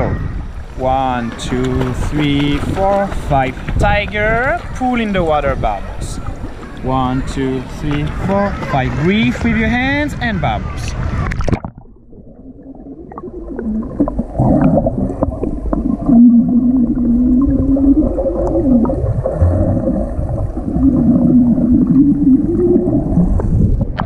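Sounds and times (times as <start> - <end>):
bubbles gurgling underwater: 11.0 - 24.0
wavering low hum: 11.0 - 24.0.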